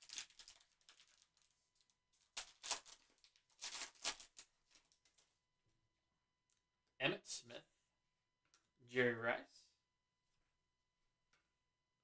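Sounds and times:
plastic wrapper crinkling: 0.0s - 5.3s.

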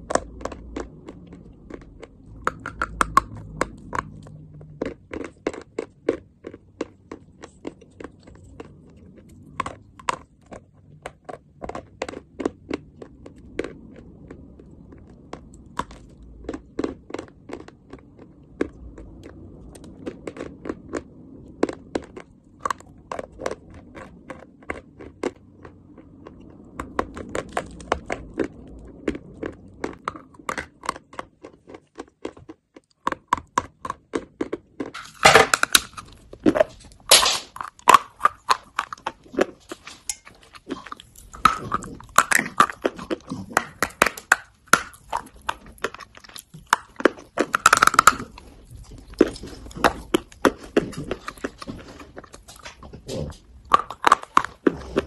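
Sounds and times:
chalk being chewed: 0.0s - 55.0s
sharp bites snapping chalk: 2.3s - 4.3s, 33.0s - 40.2s, 40.8s - 48.4s.

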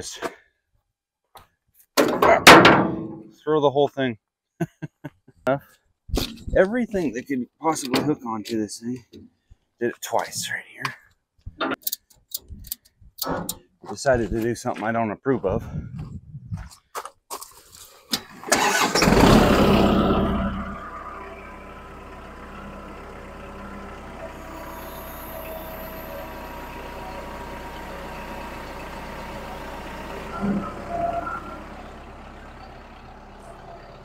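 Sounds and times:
diesel engine starting and idling: 18.2s - 34.0s.

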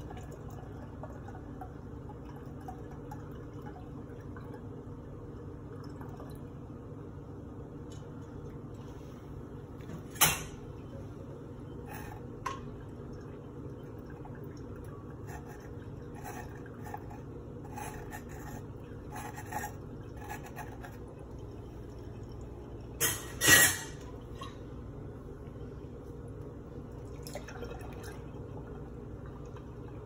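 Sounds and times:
liquid trickling into glass jug: 0.0s - 6.6s, 11.7s - 24.6s, 26.7s - 30.0s.

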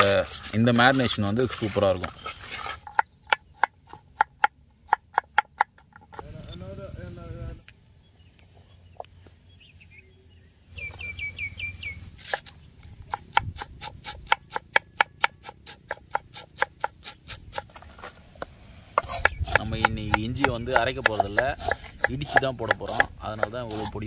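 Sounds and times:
knife chopping on cutting board: 13.1s - 17.6s, 19.0s - 24.0s.

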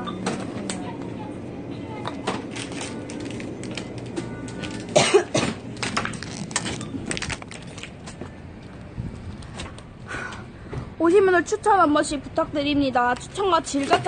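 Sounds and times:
faint background music: 0.0s - 9.2s.

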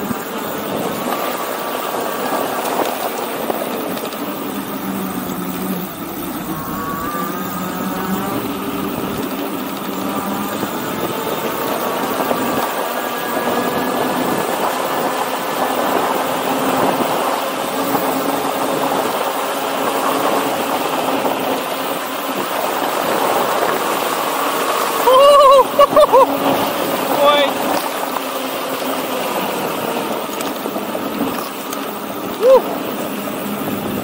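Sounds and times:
bike tyre noise: 0.0s - 34.0s
electric motor whine: 0.0s - 34.0s
short rising-and-falling cries: 5.0s - 9.2s, 25.0s - 26.4s.

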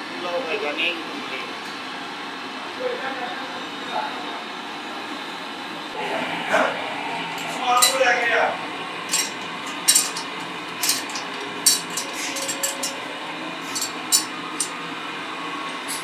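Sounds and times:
low workshop hum: 0.0s - 16.0s.

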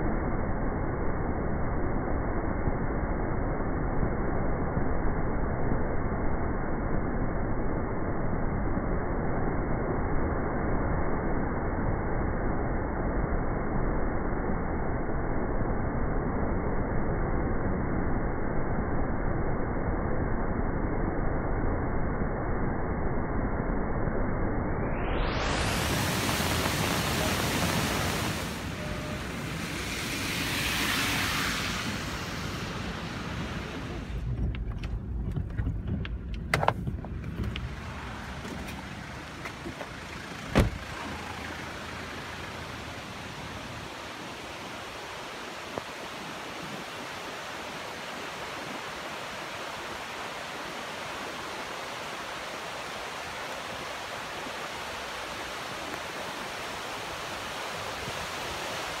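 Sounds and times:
floodwater roaring: 25.4s - 36.0s, 36.9s - 59.0s.

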